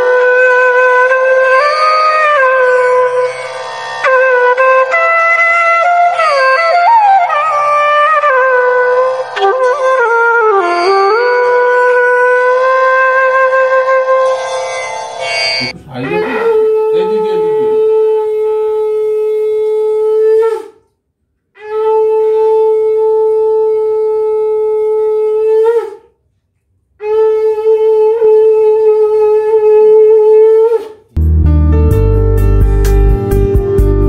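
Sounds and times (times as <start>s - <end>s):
music: 0.0s - 19.8s, 31.2s - 34.0s.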